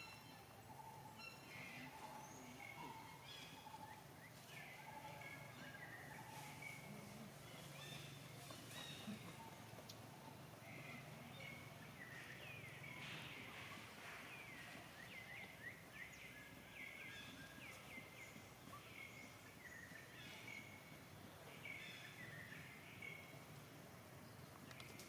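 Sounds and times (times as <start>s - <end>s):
low background hiss: 0.0s - 25.0s.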